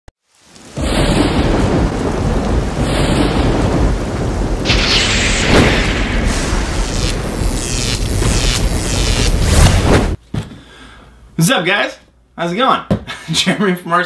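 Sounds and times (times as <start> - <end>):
heavy rain: 0.2 - 10.2
rumbling thunder: 0.7 - 10.2
sharp thunderclap: 0.7 - 10.2.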